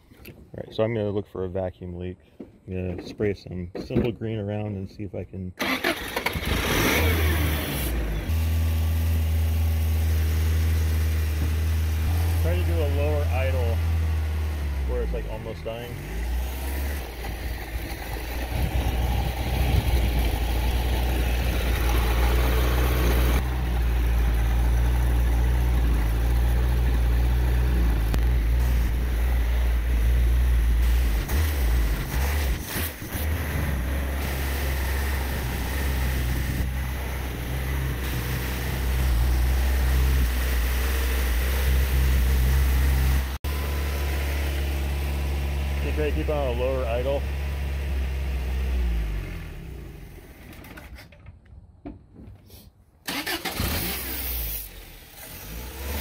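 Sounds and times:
car engine idling low: 0:08.1 - 0:32.1.

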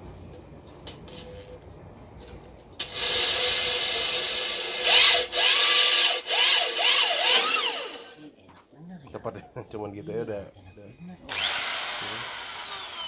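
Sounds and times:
electric drill grinding into tile: 0:02.8 - 0:08.2, 0:11.3 - 0:13.0.

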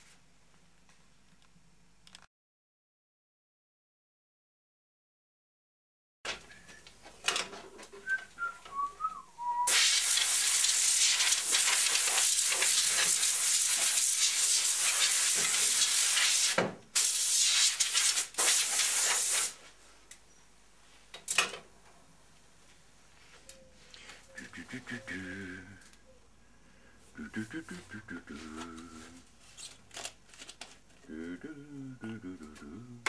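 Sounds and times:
compressed air hissing: 0:09.7 - 0:19.6.

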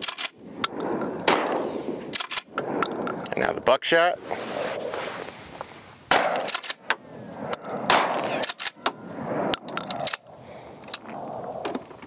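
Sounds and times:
shotgun firing: 0:01.2 - 0:02.4, 0:06.1 - 0:06.8, 0:07.9 - 0:08.8.

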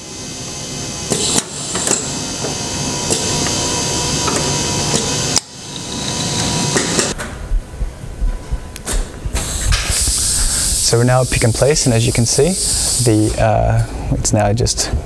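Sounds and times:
machinery running noise: 0:00.0 - 0:14.0
pneumatic gripper clicks and knocks: 0:01.1 - 0:02.1.

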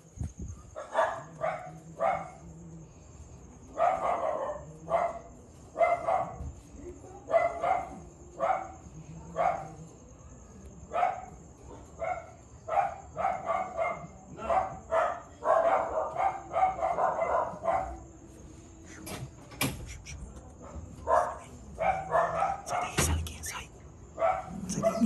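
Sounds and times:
dog barking: 0:00.7 - 0:02.5, 0:03.7 - 0:06.6, 0:07.2 - 0:09.9, 0:10.9 - 0:18.1, 0:20.6 - 0:23.2, 0:24.2 - 0:25.0.

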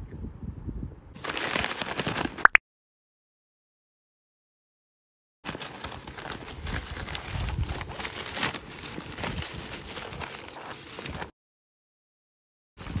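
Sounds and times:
paper bag crinkling: 0:01.2 - 0:02.5, 0:05.5 - 0:11.3.

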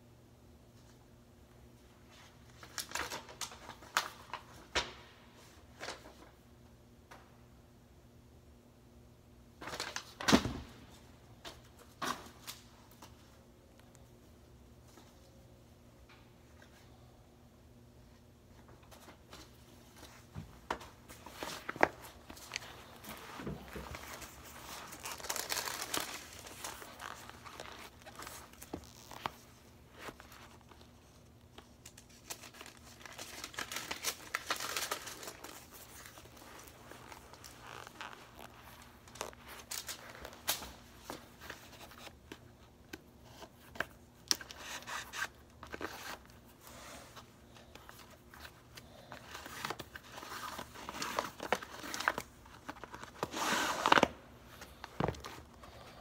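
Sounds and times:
rustling and crinkling: 0:18.5 - 0:56.0.

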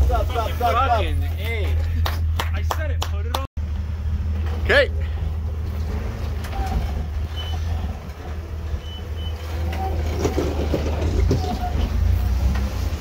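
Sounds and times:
engine low rumble: 0:00.0 - 0:13.0.

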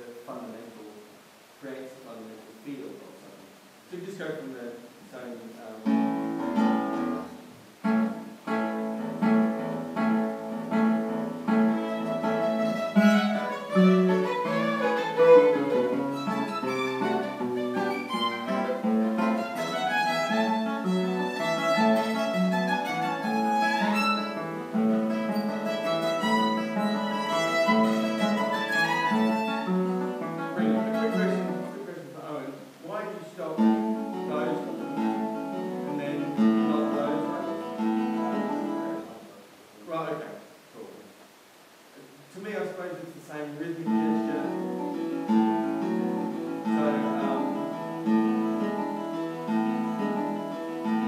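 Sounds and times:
plucked classical guitars: 0:05.4 - 0:39.4, 0:43.5 - 0:51.0
bowed violin melody: 0:10.7 - 0:31.8, 0:33.8 - 0:39.1, 0:43.9 - 0:51.0.

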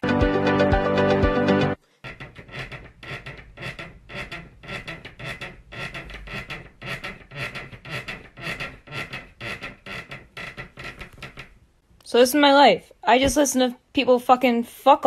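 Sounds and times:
rhythmic bed creaking and squeaking: 0:01.8 - 0:11.7.

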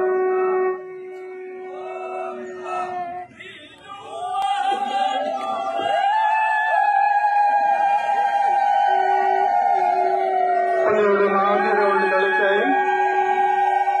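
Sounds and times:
long held note: 0:00.0 - 0:03.0
steady blown tone: 0:00.0 - 0:03.6
crew chanting and shouting: 0:01.7 - 0:14.0.

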